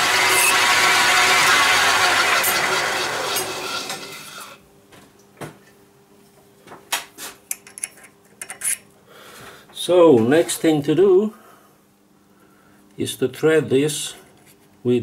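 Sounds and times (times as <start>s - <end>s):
metal lathe winding down: 0.0s - 4.6s.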